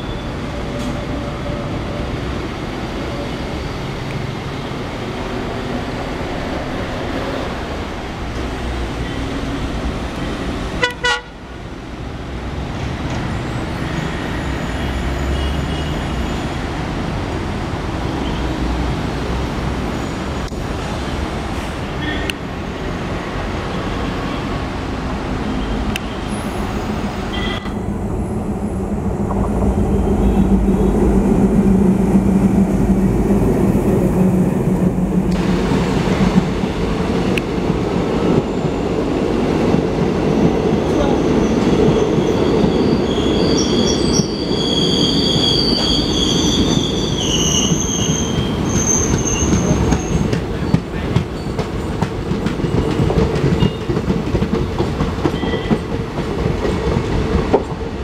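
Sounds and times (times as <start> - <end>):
train wheels squealing: 0.0 - 1.7, 13.3 - 16.8, 40.9 - 52.0, 52.6 - 53.9, 55.2 - 55.9
train coaches rolling on rails: 29.2 - 58.0.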